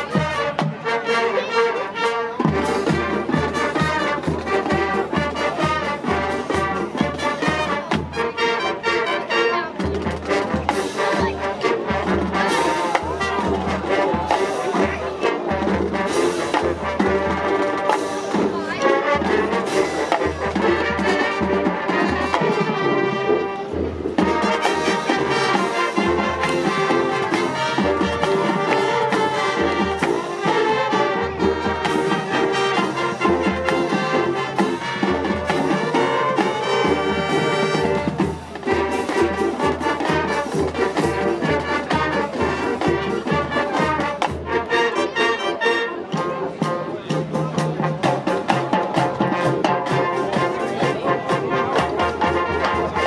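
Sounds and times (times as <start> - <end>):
brass section playing: 0.0 - 53.0.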